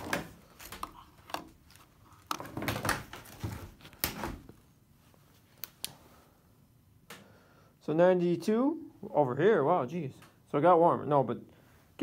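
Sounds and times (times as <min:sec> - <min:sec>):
plastic rustling: 0:00.0 - 0:05.8.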